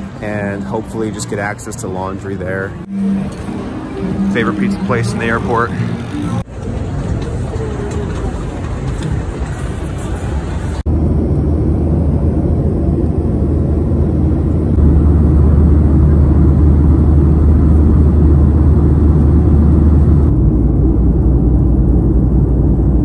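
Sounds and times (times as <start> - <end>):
jet airliner cabin rumble: 4.7 - 23.0.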